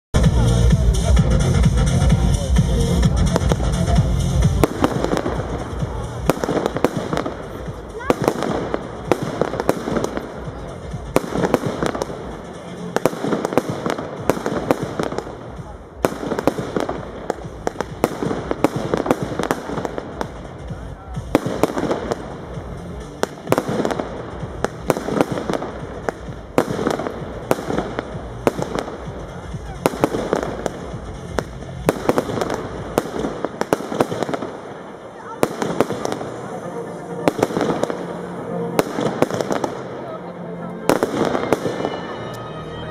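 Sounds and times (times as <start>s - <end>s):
electronic music with bass beat: 0.2s - 33.4s
firework shots: 0.2s - 42.5s.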